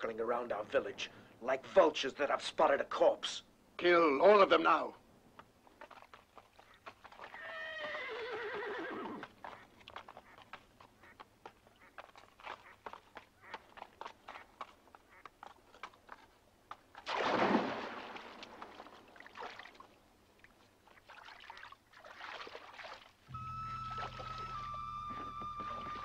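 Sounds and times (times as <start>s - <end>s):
swimming splashes: 5.7s - 7.5s, 16.9s - 26.0s
loud splash into water: 17.0s - 18.8s
soft music with low drone: 23.3s - 26.0s.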